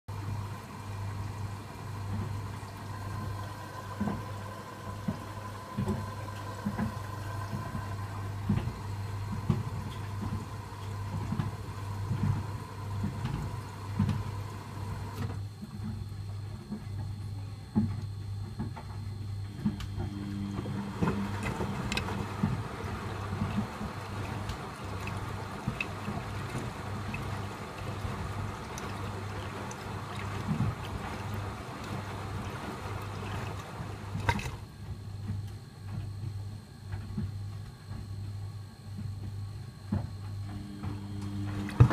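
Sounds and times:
washing machine motor hum: 0:00.0 - 0:41.9
rushing water: 0:00.1 - 0:15.2, 0:20.3 - 0:34.6
laundry and water sloshing: 0:00.1 - 0:17.1, 0:17.8 - 0:37.9, 0:39.9 - 0:41.9.

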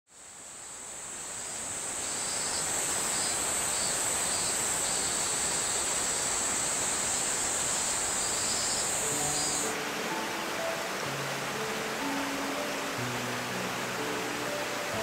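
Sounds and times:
high-pitched insect chorus: 0:00.2 - 0:10.2
even hiss: 0:00.2 - 0:15.0.

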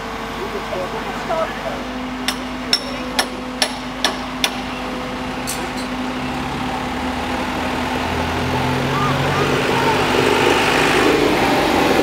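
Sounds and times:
crane engine running: 0:00.0 - 0:12.0
tractor engine approaching: 0:00.0 - 0:12.0
ringing hammer blows: 0:02.2 - 0:04.7.

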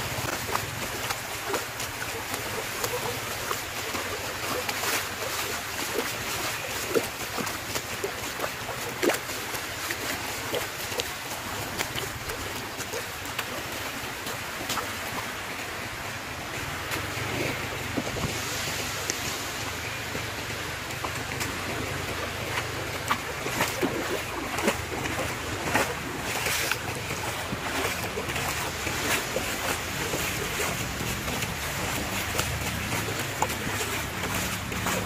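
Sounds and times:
seawater lapping at sand: 0:00.0 - 0:35.0.

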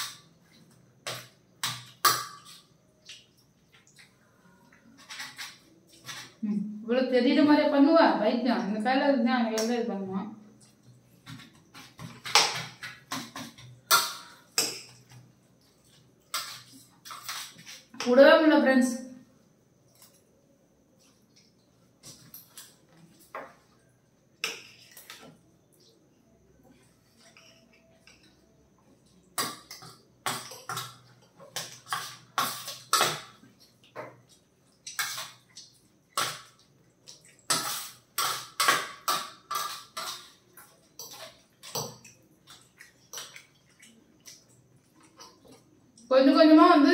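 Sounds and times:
spoons scraping plates: 0:04.8 - 0:06.4, 0:15.8 - 0:18.3, 0:29.4 - 0:33.5, 0:34.8 - 0:35.5, 0:37.3 - 0:43.8.

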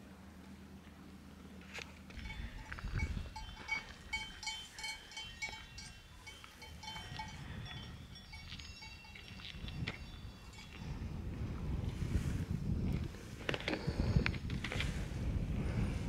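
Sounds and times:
cowbells clanking: 0:02.2 - 0:11.1.

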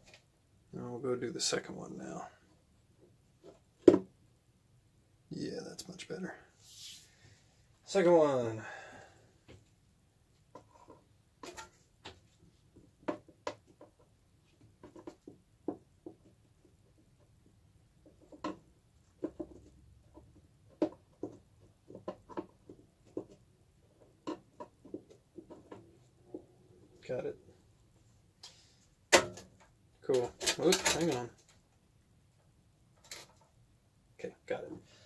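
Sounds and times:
plastic parts clicking and scraping: 0:10.4 - 0:15.4, 0:28.4 - 0:33.6.

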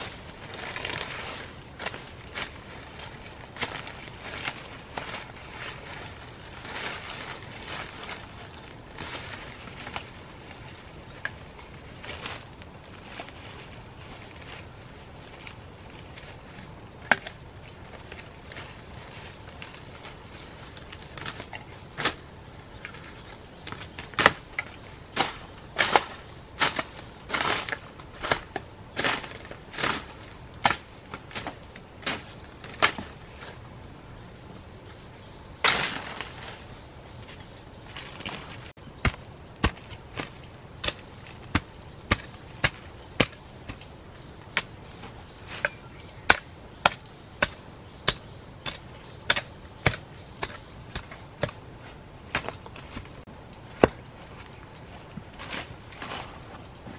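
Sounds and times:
high insect drone: 0:00.0 - 0:56.9
blade chopping wood: 0:39.0 - 0:43.9, 0:45.6 - 0:51.6.

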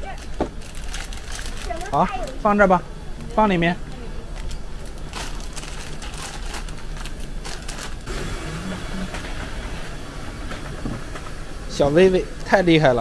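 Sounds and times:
shopping cart rattling: 0:04.8 - 0:10.0.

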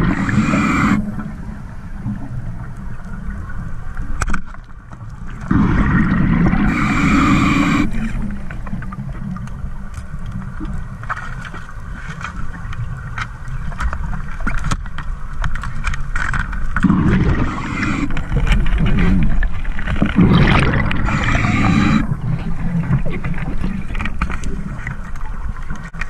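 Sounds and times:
underwater low rumble: 0:00.0 - 0:26.0
bubbles from scuba regulator: 0:05.5 - 0:08.2, 0:16.8 - 0:24.5.

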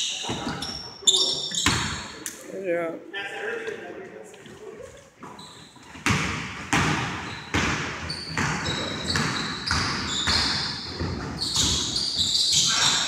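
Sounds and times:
sneakers squeaking: 0:00.0 - 0:02.2, 0:04.8 - 0:13.0
basketball bouncing on hardwood: 0:06.0 - 0:12.0.

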